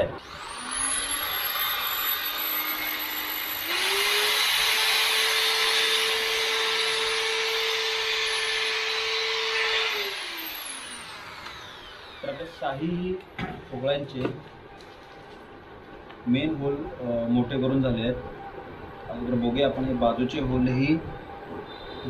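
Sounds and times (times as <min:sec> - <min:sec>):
electric drill running: 0:00.0 - 0:12.6.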